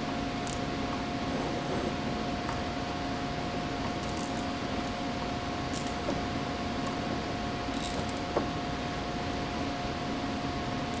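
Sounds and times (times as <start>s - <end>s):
room noise hum: 0.0s - 11.0s
cable tie ratchet clicks: 5.7s - 6.0s, 7.7s - 8.3s.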